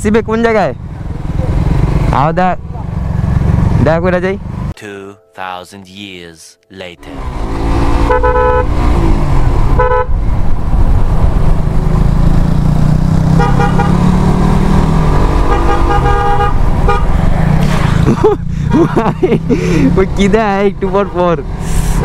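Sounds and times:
motorcycle engine running: 0.0 - 4.7
horn honking: 7.2 - 8.9, 9.7 - 10.2, 13.3 - 14.2, 15.4 - 17.2.

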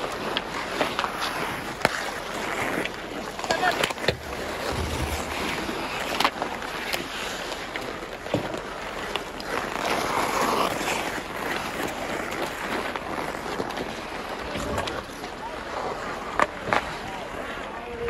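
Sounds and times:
hockey sticks clacking: 0.0 - 17.1
skates scraping on ice: 0.0 - 18.0.

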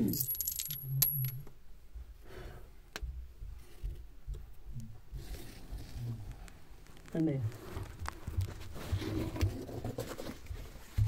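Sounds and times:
light metallic jingling: 0.0 - 1.4.

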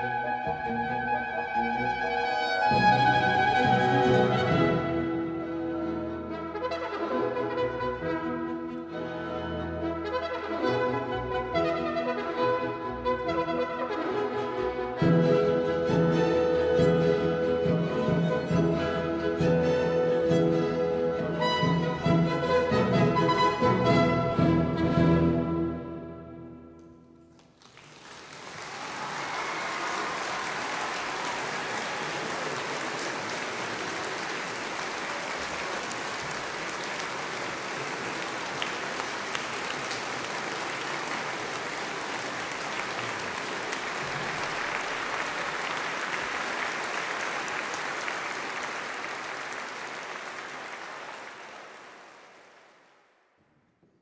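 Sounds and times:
audience applauding: 27.3 - 53.2.

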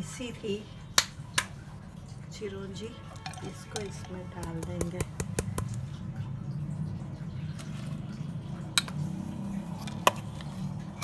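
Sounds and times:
metal bowl tapping pan: 3.1 - 5.8.

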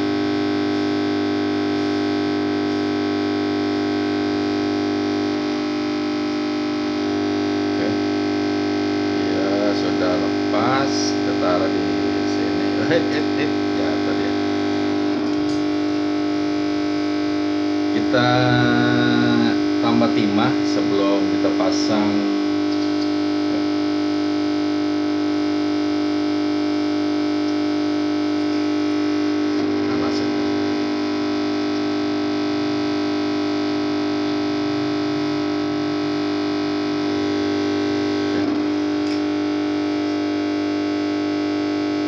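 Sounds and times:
electrical hum: 0.0 - 42.0.

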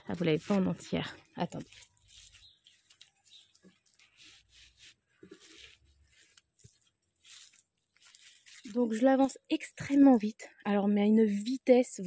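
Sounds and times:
plastic film rustling: 0.0 - 9.6.

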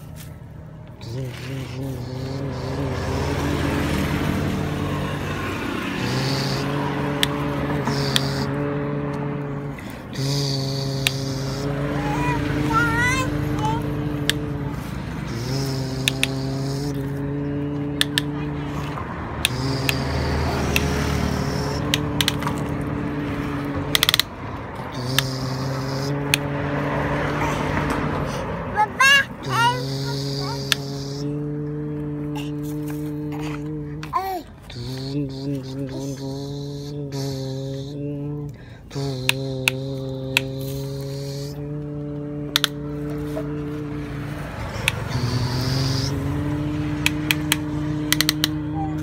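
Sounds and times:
person imitating truck engine: 0.0 - 49.0
steady low hum: 0.0 - 49.0
toy excavator arm clicks: 7.2 - 8.5, 15.4 - 16.6, 18.0 - 18.3, 19.4 - 22.7, 23.9 - 24.3, 24.9 - 25.4, 30.2 - 31.2, 39.1 - 40.7, 42.5 - 42.8, 44.8 - 45.8, 47.0 - 49.0
ratcheting clicks: 15.3 - 17.0, 20.7 - 22.6, 23.9 - 24.3, 42.5 - 42.8, 47.0 - 48.6
plastic toy joints clicking: 16.0 - 16.4, 18.0 - 18.3, 21.9 - 22.6, 23.9 - 24.3, 42.5 - 42.8, 47.0 - 48.6.

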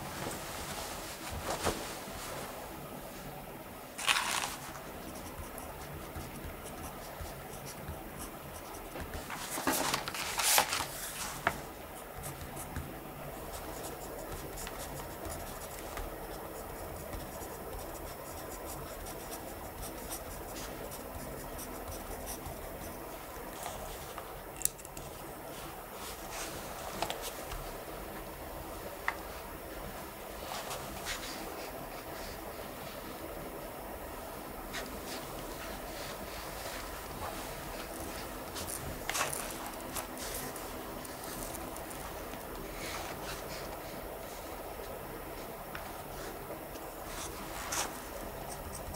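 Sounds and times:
paper rustles: 4.0 - 4.9, 8.9 - 11.7, 34.8 - 43.7
pen scratching on paper: 5.0 - 9.2, 13.4 - 23.1, 47.2 - 48.9.

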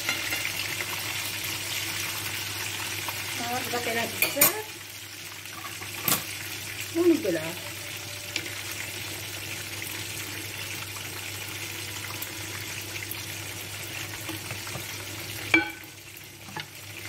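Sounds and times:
sauce simmering and sizzling: 0.0 - 17.0.

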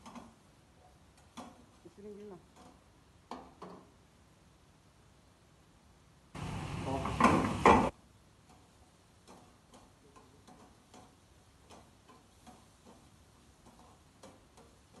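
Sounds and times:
sharp knocks: 6.9 - 7.9
faint regular ticks: 8.5 - 15.0.

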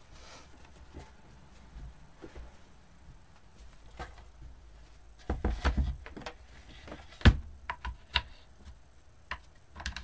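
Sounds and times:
wooden pegs clicking and knocking: 9.3 - 10.0.

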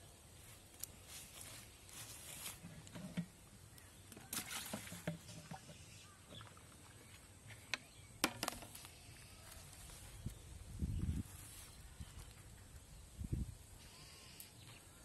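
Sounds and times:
plastic bucket rustle: 1.3 - 3.5, 4.1 - 5.8.

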